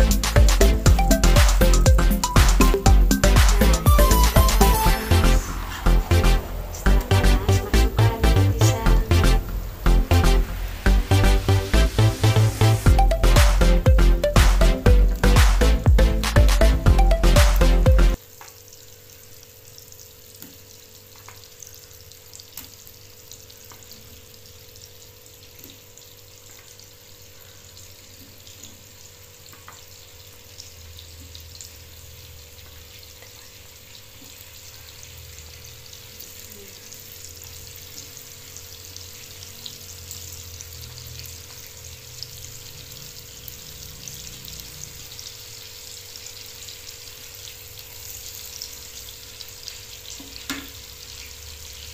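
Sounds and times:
faint steady hum: 0.0 - 18.2
banana sizzling in a pan: 4.6 - 15.8, 17.7 - 51.9.

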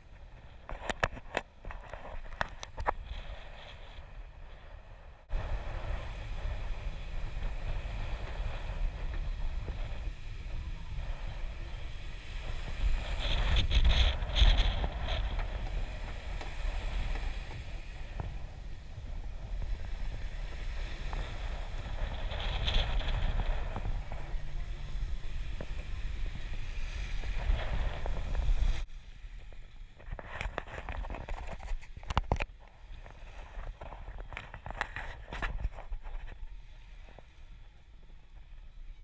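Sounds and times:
wind buffeting microphone: 0.0 - 39.0
trailer rumbling over sand: 3.2 - 28.9.

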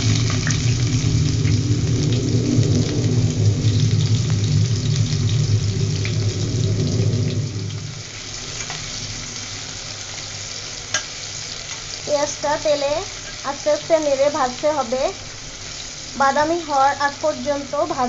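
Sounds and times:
low steady rumble: 0.0 - 10.2
onions sizzling in oil: 0.0 - 18.0.

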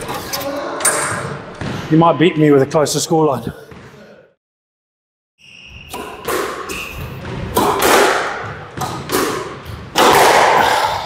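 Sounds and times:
squash ball hitting walls: 5.9 - 11.0.

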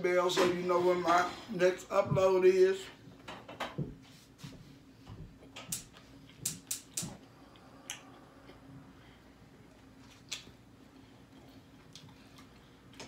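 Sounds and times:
taco crunching: 9.6 - 13.0.

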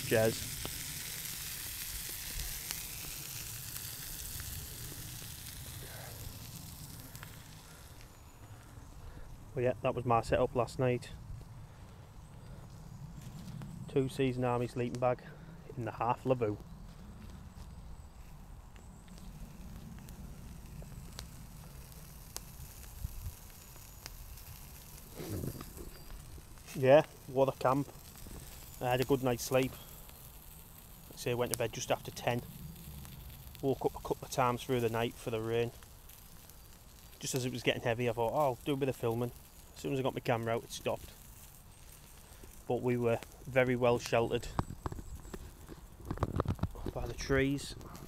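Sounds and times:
sausages sizzling in pan: 0.0 - 8.8, 18.9 - 48.0
sharp fire pops: 0.0 - 8.8, 18.7 - 48.0
campfire crackling: 0.0 - 48.0.

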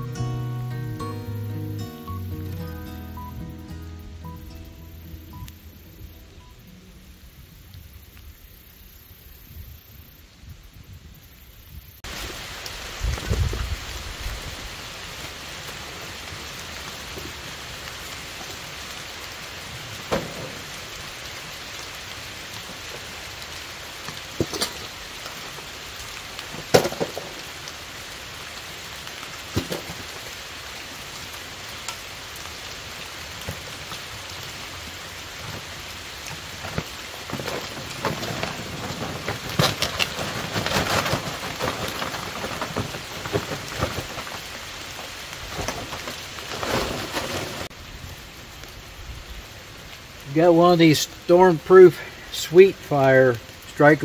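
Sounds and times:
steady rain: 0.0 - 54.0
camp gear clattering and rustling: 20.1 - 20.9, 24.0 - 25.7, 26.4 - 27.5, 29.5 - 30.3, 35.3 - 47.8.

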